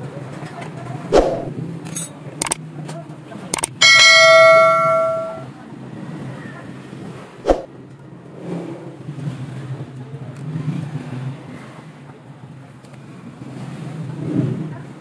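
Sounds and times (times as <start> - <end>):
sharp click: 1.1 - 2.6, 3.6 - 5.4
bright bell ring: 3.6 - 5.5.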